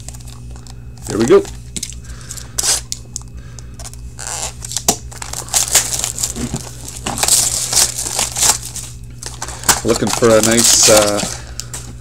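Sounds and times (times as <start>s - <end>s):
steady low hum: 0.0s - 12.0s
wrapper crinkling and tearing: 4.2s - 11.8s.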